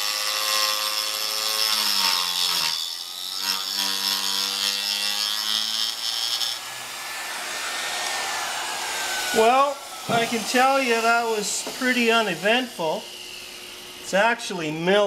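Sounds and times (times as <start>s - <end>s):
router bit cutting metal: 0.0s - 14.2s
electric router motor whine: 5.8s - 14.2s.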